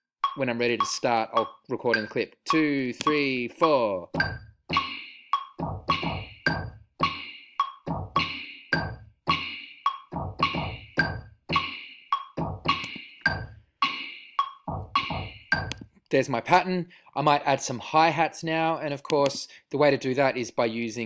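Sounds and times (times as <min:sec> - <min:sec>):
gated snare drum: 0:00.2 - 0:15.8
metronome clicking: 0:00.2 - 0:15.8
deep kick drum: 0:04.1 - 0:04.9, 0:05.6 - 0:07.2, 0:07.9 - 0:09.5, 0:10.1 - 0:11.7, 0:12.4 - 0:13.5, 0:14.7 - 0:15.8.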